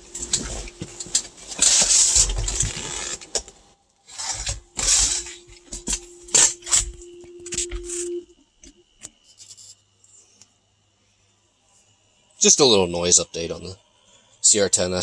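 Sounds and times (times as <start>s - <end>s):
loud rustling noise: 0.0s - 8.1s.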